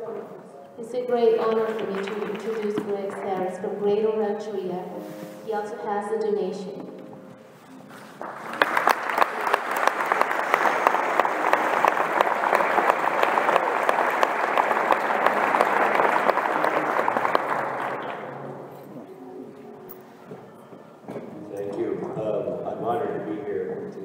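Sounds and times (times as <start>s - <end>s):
audience applauding: 1.4s - 3.6s, 8.2s - 18.7s.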